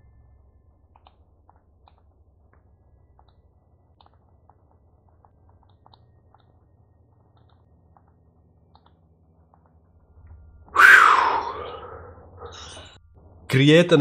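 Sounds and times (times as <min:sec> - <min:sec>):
low room hum: 0:00.0 - 0:14.0
computer mouse clicks: 0:00.9 - 0:09.9.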